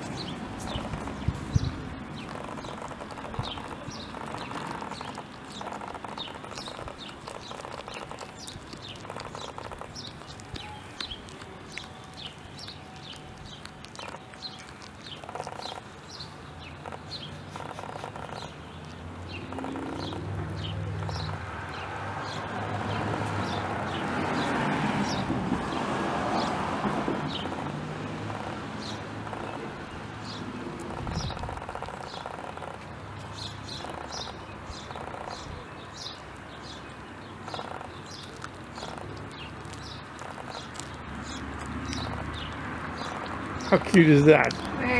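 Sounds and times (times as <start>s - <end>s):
broad rush of noise: 0.0s - 44.9s
small birds chirping: 0.0s - 44.9s
cat chewing bones: 0.6s - 21.4s, 36.3s - 44.8s.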